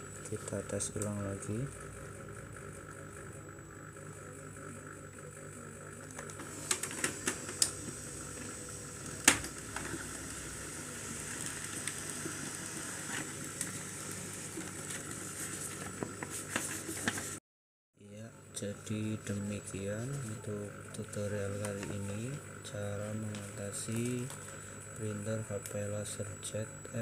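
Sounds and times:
laser printer running: 0.0 - 17.4, 18.0 - 27.0
printer clicks: 9.2 - 10.2.

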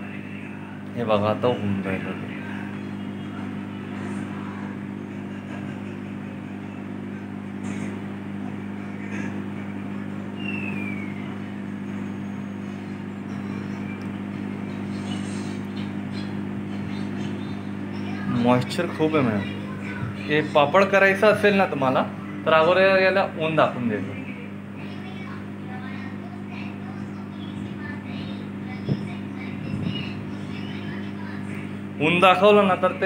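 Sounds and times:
microwave oven humming: 0.0 - 33.0.

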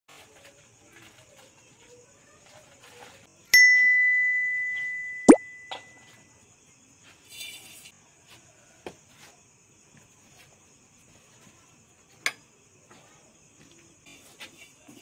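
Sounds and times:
faint high-pitched drone: 3.6 - 6.1.

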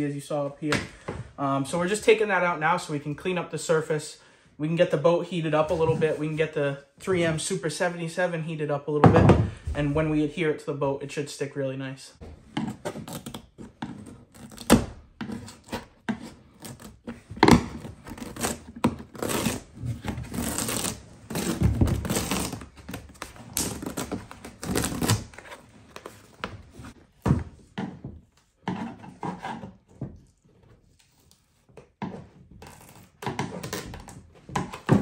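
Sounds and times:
foam matting peeling: 14.2 - 27.0.

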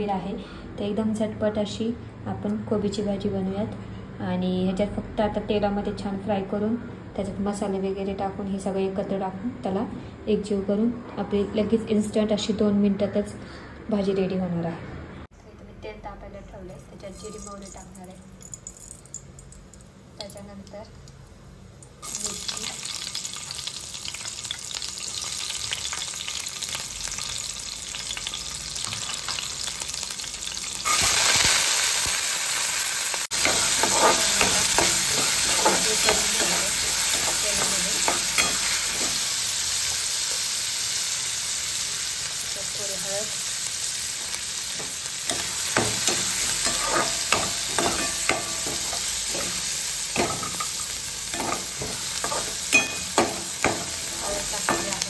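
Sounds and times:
hot oil sizzling: 16.9 - 55.0
spoon scraping a metal pan: 33.4 - 39.2, 44.8 - 55.0.

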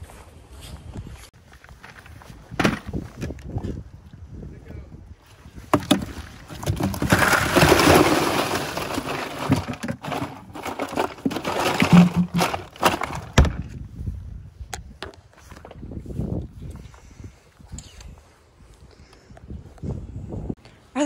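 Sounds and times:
thump against cooler: 2.6 - 2.9
ice cubes clattering into cooler: 5.7 - 13.6.

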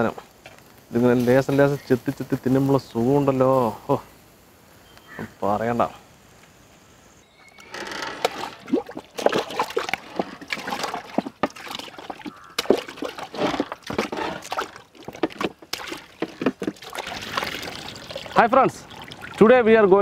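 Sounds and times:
water trickling: 7.4 - 20.0
water sloshing in a steel pot: 8.2 - 19.5.

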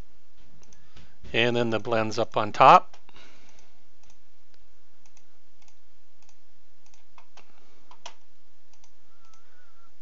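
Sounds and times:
computer mouse clicking: 0.6 - 0.8, 2.9 - 4.2, 5.0 - 9.5.

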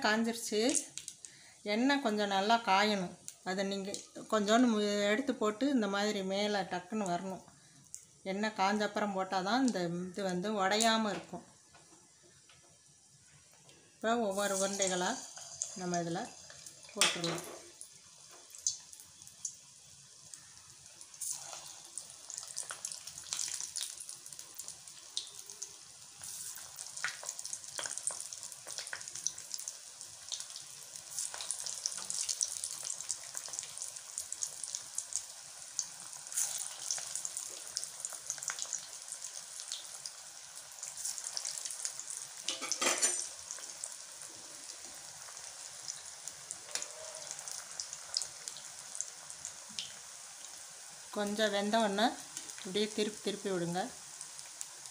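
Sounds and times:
deep-frying sizzle in oil: 0.0 - 54.9.

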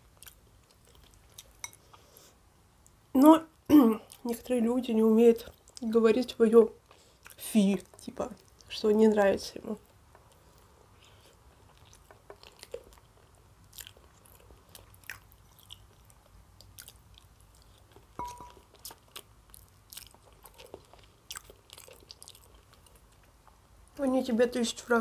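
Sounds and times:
person chewing food: 0.0 - 3.0, 6.8 - 8.7, 9.8 - 23.7.

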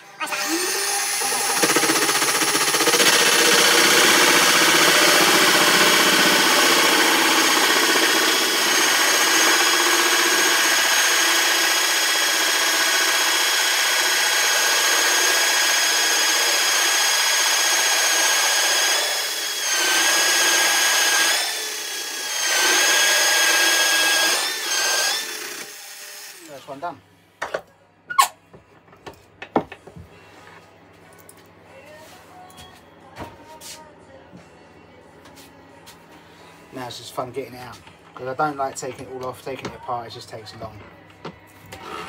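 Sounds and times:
drill motor whine: 0.0 - 26.5
hole saw cutting wood: 0.2 - 26.6, 41.7 - 42.0.

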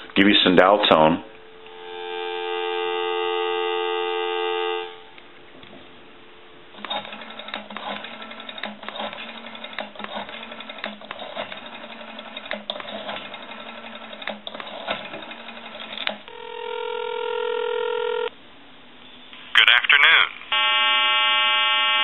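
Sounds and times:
telephone ringback tone: 1.5 - 5.1, 16.3 - 18.3, 20.5 - 22.0.

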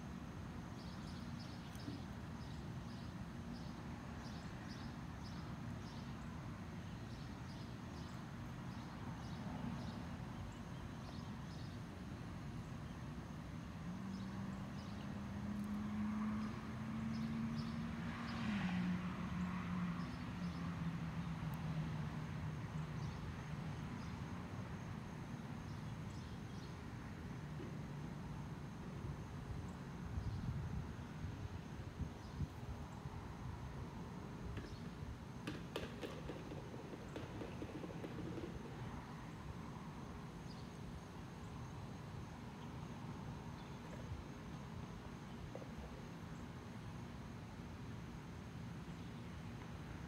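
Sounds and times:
low rumble and hiss: 20.9 - 50.0.

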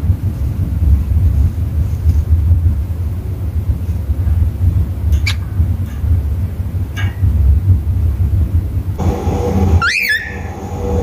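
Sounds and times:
low rumble: 0.0 - 11.0
cockatiel chirps: 9.8 - 10.4.

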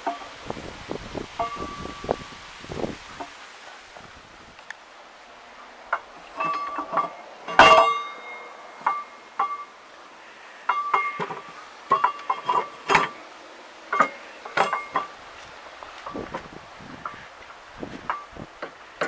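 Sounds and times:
steel gears clinking and knocking: 13.9 - 15.2.

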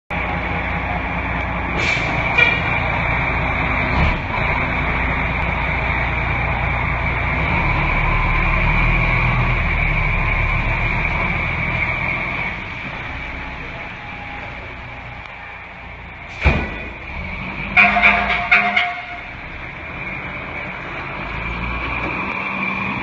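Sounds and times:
diesel engine running: 0.1 - 23.0
air brake hiss: 1.8 - 2.2.

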